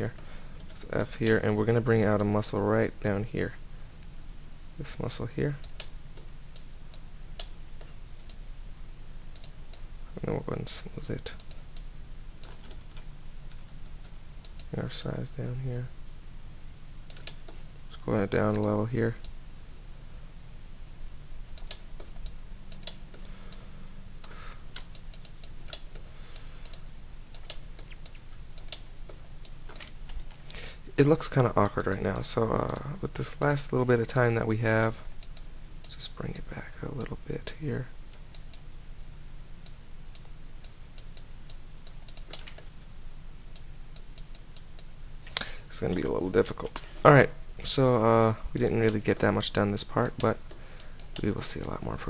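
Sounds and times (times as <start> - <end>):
low steady hum: 0.0 - 52.0
computer keys clicking: 5.6 - 8.4, 9.3 - 9.8, 11.2 - 13.6, 14.4 - 14.8, 17.1 - 17.6, 18.4 - 19.4, 21.6 - 23.6, 24.2 - 30.6, 35.2 - 36.4, 39.6 - 42.7, 50.0 - 51.8.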